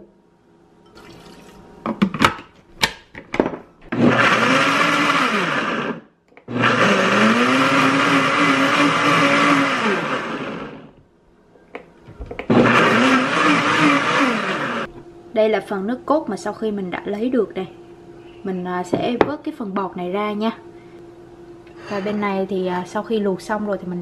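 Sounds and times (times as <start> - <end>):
blender motor running: 3.9 - 10.9, 12.4 - 14.9.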